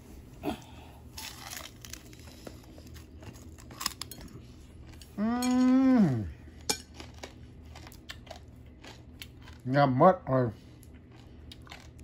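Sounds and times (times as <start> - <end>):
chewing crunchy food: 0.6 - 5.8, 6.4 - 9.8, 10.6 - 12.0.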